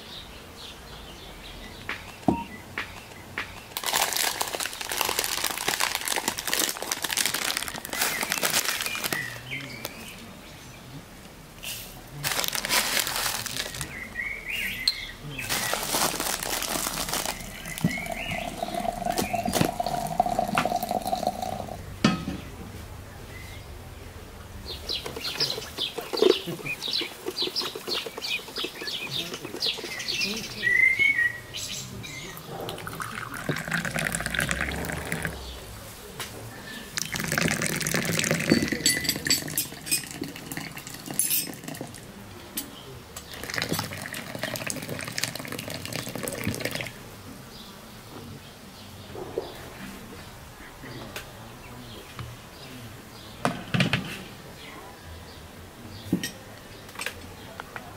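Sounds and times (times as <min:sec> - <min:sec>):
high bird calls: 0:00.0 - 0:03.8, 0:13.5 - 0:21.8, 0:24.7 - 0:35.7
plastic packet crinkling: 0:03.8 - 0:09.4, 0:12.2 - 0:14.0, 0:15.5 - 0:21.5
water running from tap: 0:17.7 - 0:21.6.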